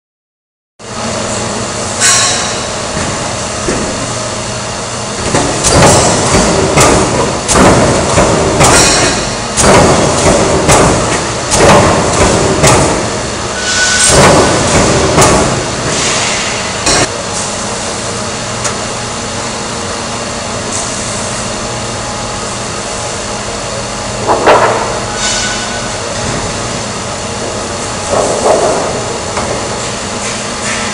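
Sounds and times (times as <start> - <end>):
steady machine hum: 0.8 - 30.9
metal clanking and banging: 5.2 - 17.1.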